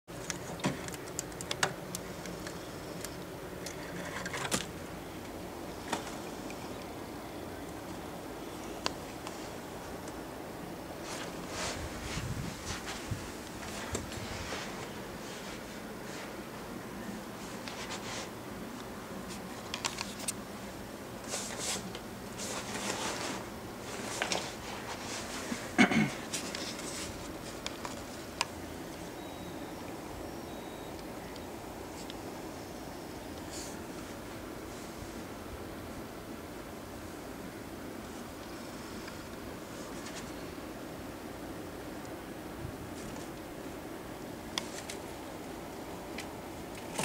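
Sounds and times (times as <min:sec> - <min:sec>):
steady low hum: 0:00.1 - 0:47.0
soft rustling and scraping: 0:11.0 - 0:29.2, 0:38.0 - 0:40.6.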